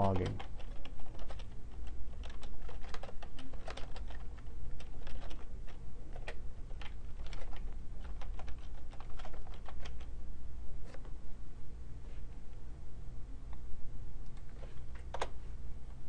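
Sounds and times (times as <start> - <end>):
keyboard typing clicks: 0.0 - 5.5, 6.1 - 10.1
steady low hum: 0.0 - 16.0.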